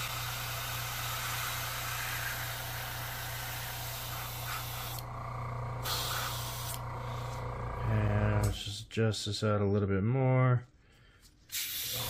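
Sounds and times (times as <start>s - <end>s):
airbrush spraying hiss: 0.0s - 5.0s, 5.8s - 7.2s, 11.5s - 12.0s
low hum: 0.1s - 8.8s.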